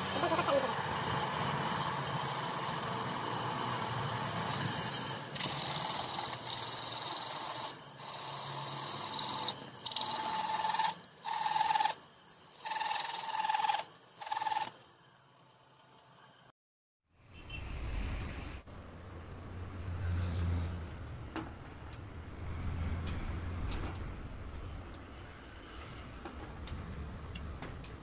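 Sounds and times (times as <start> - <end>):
drill grinding through steel: 0.0 - 16.0
steady drill whine: 0.0 - 16.5.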